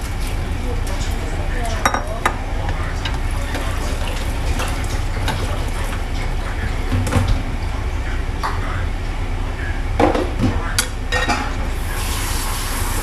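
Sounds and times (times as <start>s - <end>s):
soup bubbling in a pot: 0.0s - 1.5s.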